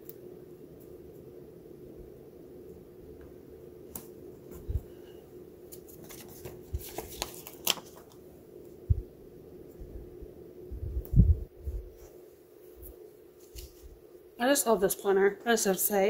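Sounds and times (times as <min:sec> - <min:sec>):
faint steady hum: 0:00.0 - 0:16.0
paper crinkles and clicks: 0:05.7 - 0:08.2.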